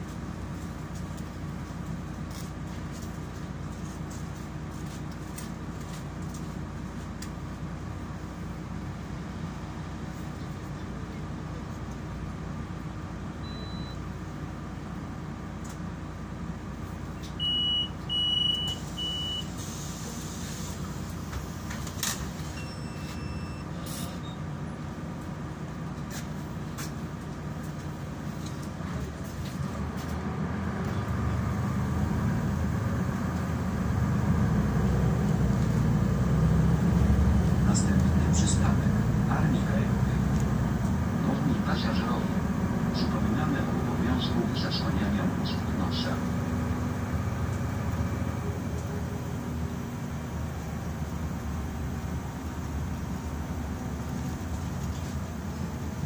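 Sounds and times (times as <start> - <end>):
bus engine idling: 0.0 - 56.0
bus engine pulling away: 0.0 - 56.0
short high beeps: 13.4 - 14.0, 22.6 - 24.4
brief hiss: 19.5 - 21.1.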